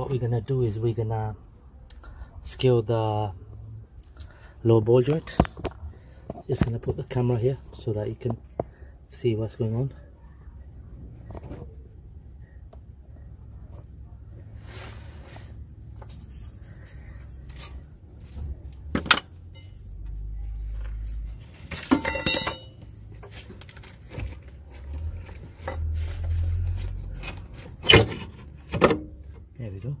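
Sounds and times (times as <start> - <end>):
metal tools clinking: 21.7 - 22.9
ringing metallic clatter: 21.8 - 22.9.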